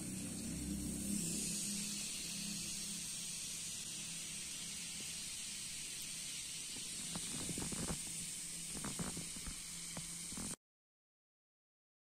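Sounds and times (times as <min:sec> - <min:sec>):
bath fizzing hiss: 0:01.1 - 0:10.6.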